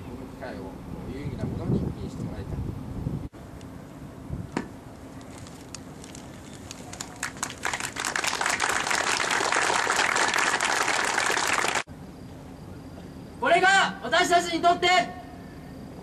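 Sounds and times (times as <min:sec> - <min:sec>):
group clapping: 0:06.6 - 0:11.9.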